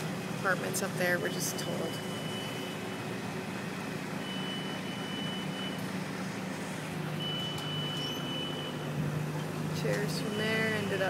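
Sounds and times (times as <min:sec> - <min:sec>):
engine idling: 0:00.0 - 0:11.0
electronic warning beeper: 0:01.2 - 0:03.0, 0:04.2 - 0:05.8, 0:07.2 - 0:09.0.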